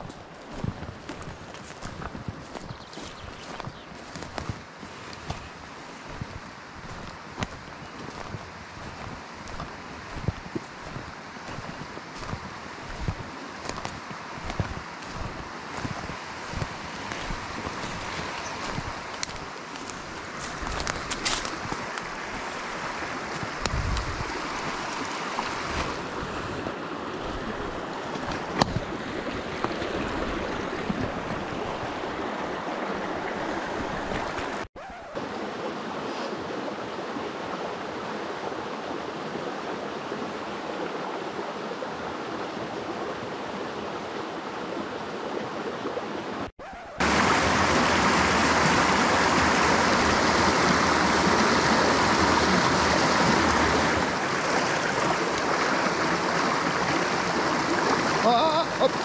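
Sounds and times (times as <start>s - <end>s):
stream running over rocks: 0.0s - 59.0s.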